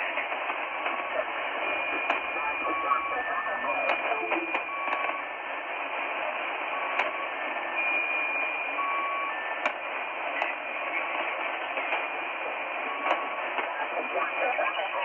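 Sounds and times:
radio static hiss: 0.0s - 9.0s, 9.6s - 15.0s
static crackles: 0.0s - 9.0s, 9.6s - 15.0s
short beeping tones: 1.8s - 5.3s.

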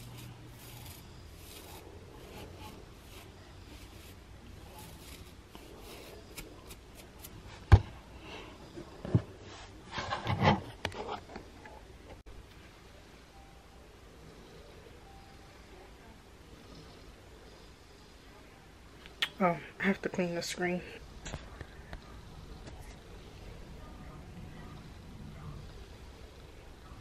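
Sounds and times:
fingernail scratching on scalp: 0.0s - 7.4s.

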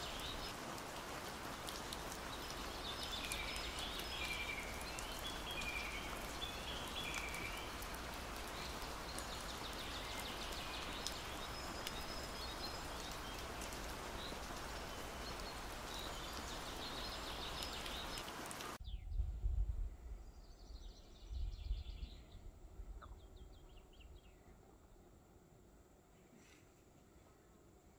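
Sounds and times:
rain falling in forest: 0.0s - 18.9s
birds chirping: 0.0s - 19.0s.

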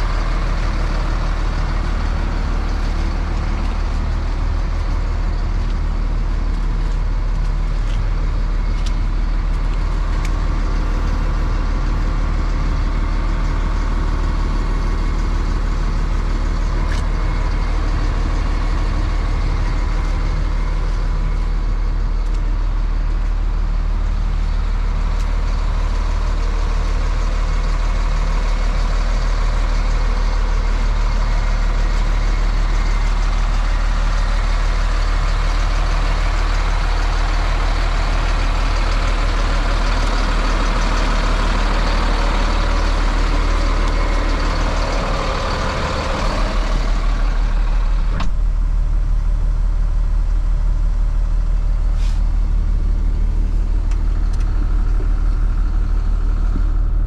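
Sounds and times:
truck engine idling: 0.0s - 57.0s
click: 53.9s - 54.5s.

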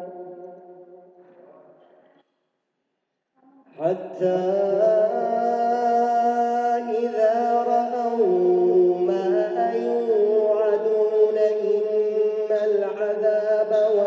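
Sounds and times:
man chanting melodically: 0.0s - 0.8s, 3.7s - 14.0s.

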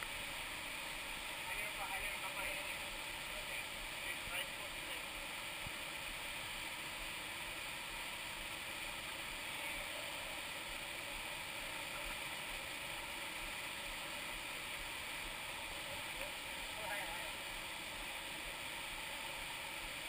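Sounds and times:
river water rushing over rocks: 0.0s - 20.0s.

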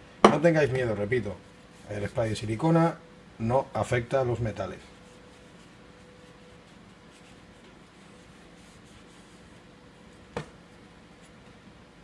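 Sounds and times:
cloth rubbing on metal: 4.9s - 10.3s.

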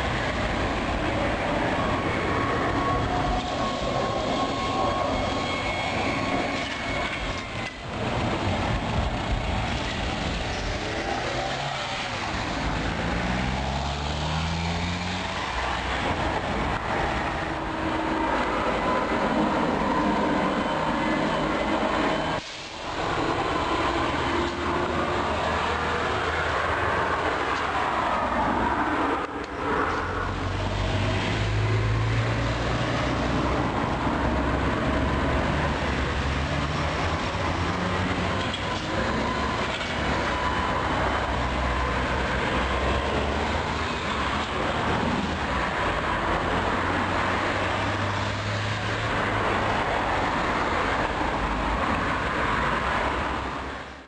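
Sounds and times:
tyre and road noise: 0.0s - 54.0s
trolleybus motor hum: 14.5s - 54.0s.

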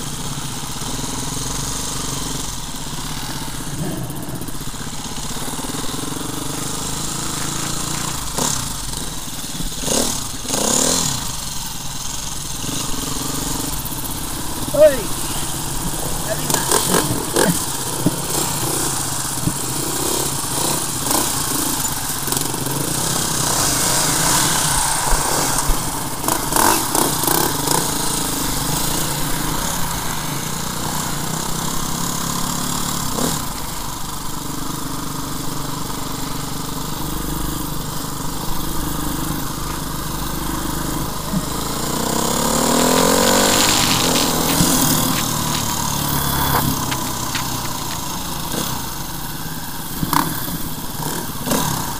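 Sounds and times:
dirt bike engine revving: 0.0s - 51.9s
engine knocks: 11.2s - 49.2s.

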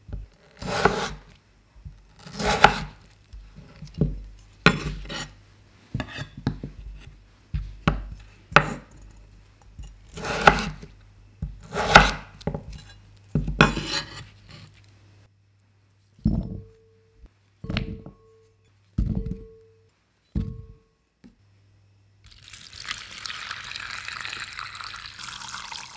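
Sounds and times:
knife cutting potato on board: 0.5s - 1.2s, 2.2s - 3.0s, 10.1s - 14.7s.

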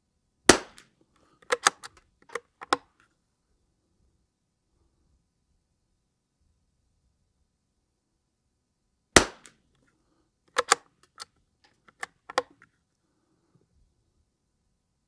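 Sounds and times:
rifle shot: 0.5s - 0.9s, 9.2s - 9.6s
rifle bolt clicking: 1.4s - 2.8s, 10.5s - 12.6s.

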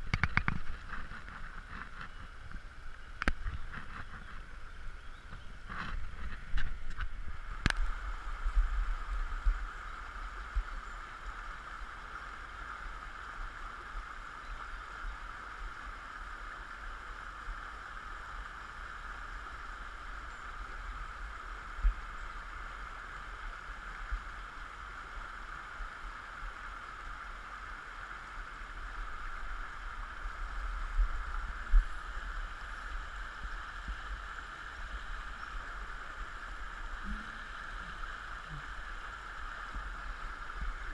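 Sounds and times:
stream rushing over stones: 0.0s - 40.9s.

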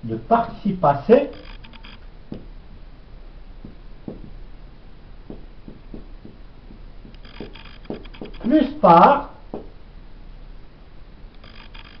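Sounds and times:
low steady hum: 0.0s - 12.0s
marker writing on whiteboard: 5.3s - 8.6s.

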